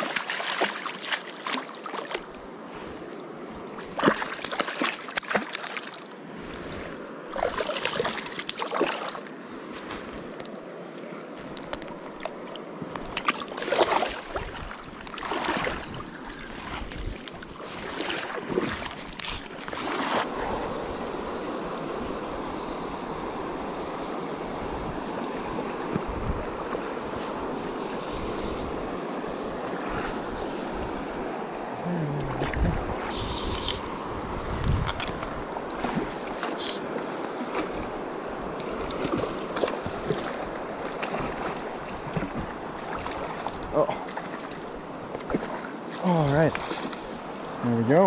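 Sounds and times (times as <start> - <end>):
water splashes: 0.0 - 2.4, 3.8 - 9.3, 12.1 - 21.0, 31.8 - 34.1, 35.0 - 48.0
river water rushing: 0.0 - 9.7, 11.9 - 34.5, 35.2 - 47.9.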